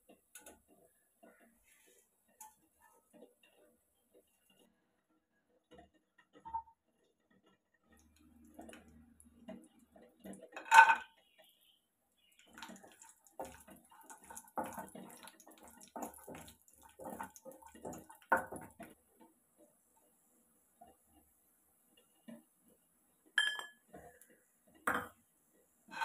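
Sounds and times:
faint sizzle of frying ghee: 0:00.0 - 0:26.0
wooden spatula scraping a pan: 0:00.2 - 0:04.7.

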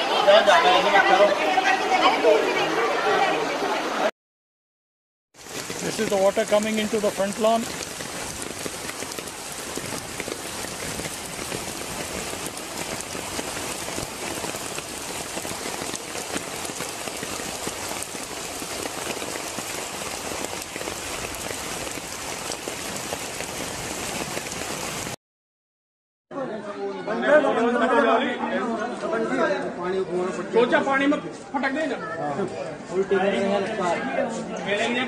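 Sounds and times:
floodwater pouring: 0:05.4 - 0:25.2.

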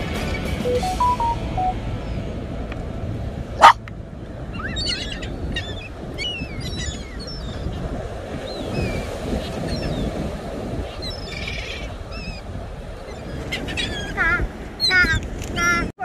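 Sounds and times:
wind and surf rumble: 0:00.0 - 0:16.0
seagulls calling: 0:04.5 - 0:07.8, 0:10.9 - 0:15.8.

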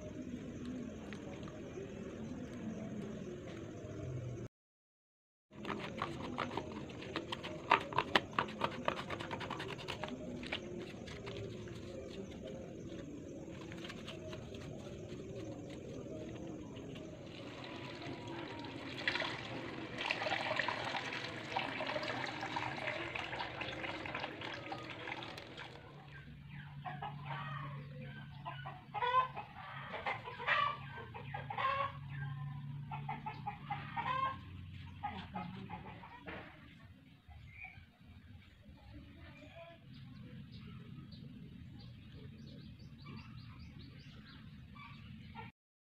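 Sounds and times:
chickens clucking: 0:26.5 - 0:36.6.

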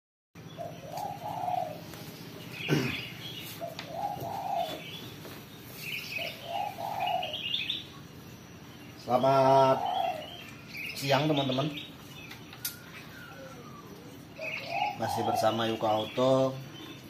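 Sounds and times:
dove cooing: 0:00.4 - 0:07.8, 0:09.2 - 0:10.9, 0:12.5 - 0:16.2
small birds chirping: 0:00.4 - 0:17.0.

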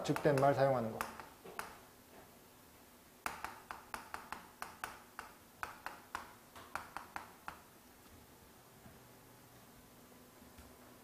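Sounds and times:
chalk tapping on chalkboard: 0:00.0 - 0:01.8, 0:03.2 - 0:07.7.

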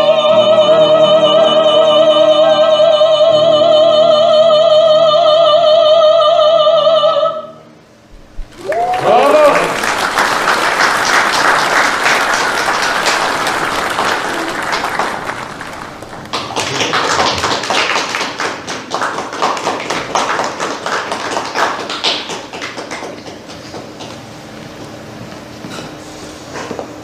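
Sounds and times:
audience applause: 0:08.5 - 0:24.2.

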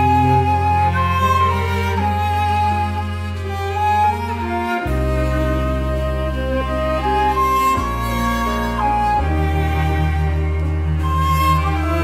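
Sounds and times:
string ensemble playing slowly: 0:00.0 - 0:12.0.

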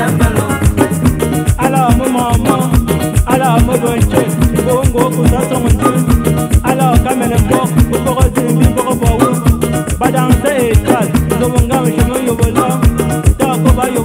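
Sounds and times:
fast shaker: 0:00.0 - 0:14.0
plucked guitar: 0:00.0 - 0:14.0
steady drum beat: 0:00.0 - 0:14.0
upbeat background music: 0:00.0 - 0:14.0.

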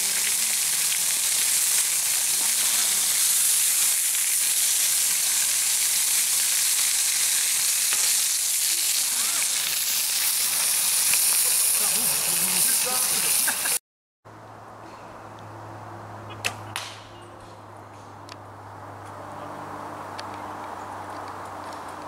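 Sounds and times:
steady hiss: 0:00.0 - 0:13.8.

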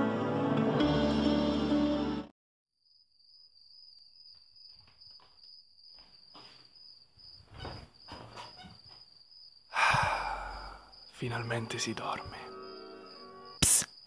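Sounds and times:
cricket trilling: 0:02.8 - 0:14.0.

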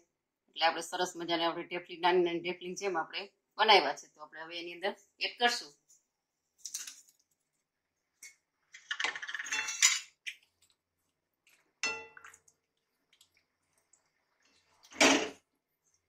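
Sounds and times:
metal kitchenware clinking and scraping: 0:09.0 - 0:10.2, 0:11.8 - 0:12.3.

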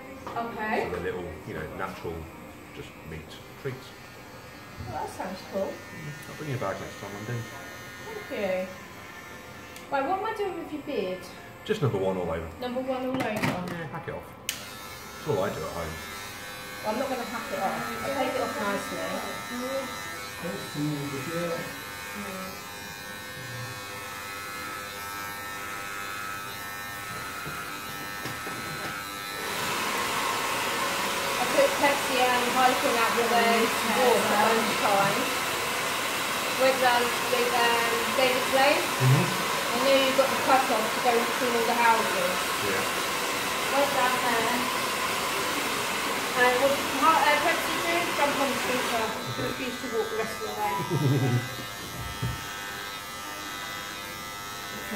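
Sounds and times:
hair clippers buzzing: 0:00.2 - 0:54.9.

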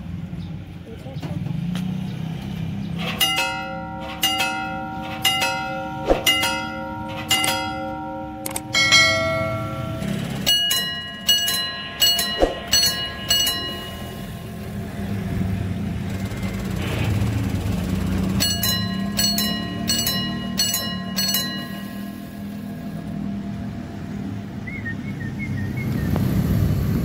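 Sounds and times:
low road traffic rumble: 0:00.0 - 0:27.0
crossing bell ringing strikes: 0:03.0 - 0:24.2
different pitched bell quick clusters: 0:03.1 - 0:15.5, 0:18.2 - 0:23.0.

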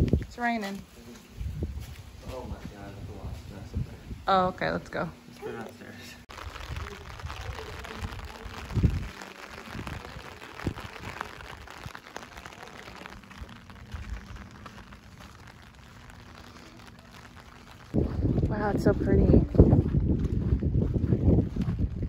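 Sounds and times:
rain falling on paving: 0:06.3 - 0:18.5.

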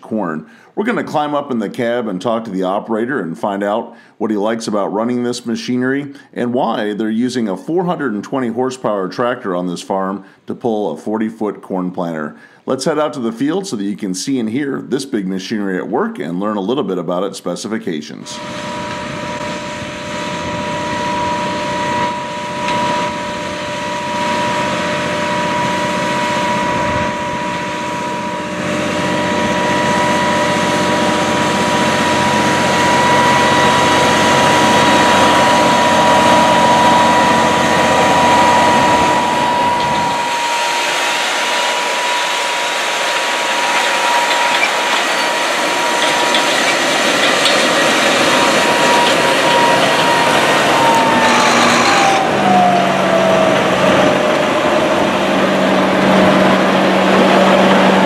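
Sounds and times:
steady high whine: 0:18.1 - 0:58.0
tractor diesel engine under load: 0:18.3 - 0:58.0.

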